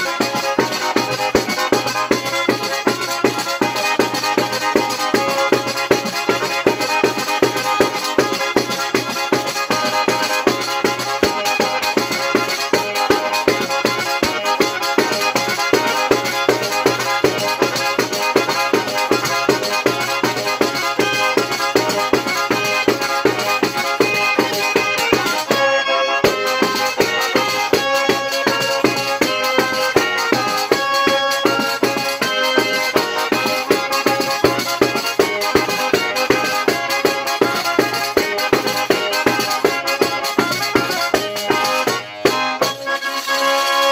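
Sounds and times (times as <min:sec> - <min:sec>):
button accordion: 0:00.0 - 0:43.9
frame drum with jingles: 0:00.0 - 0:43.9.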